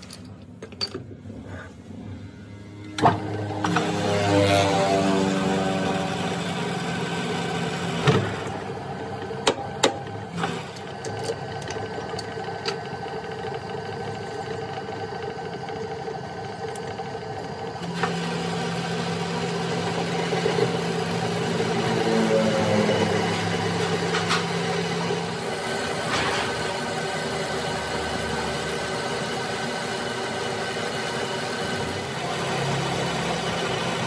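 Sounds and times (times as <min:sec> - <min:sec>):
metal tools clinking: 0:00.0 - 0:01.1
metal lathe running: 0:01.2 - 0:34.0
lathe shutting off knock: 0:02.8 - 0:34.0.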